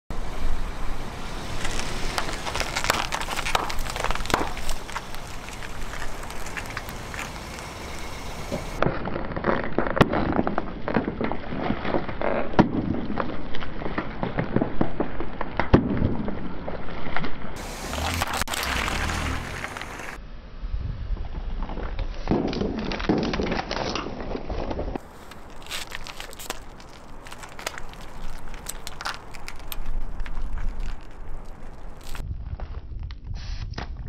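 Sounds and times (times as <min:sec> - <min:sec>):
tyre crushing plastic pouches: 0:01.8 - 0:08.2, 0:25.0 - 0:32.2.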